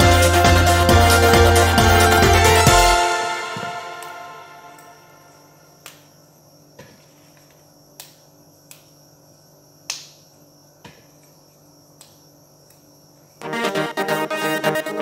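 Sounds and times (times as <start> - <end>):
green beans snapping: 7.9 - 9.0, 9.8 - 10.2.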